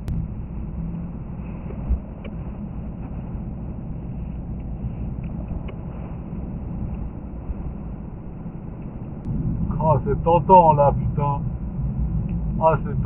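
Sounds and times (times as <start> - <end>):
low thump: 0.0 - 0.8
car cabin rumble: 0.0 - 13.0.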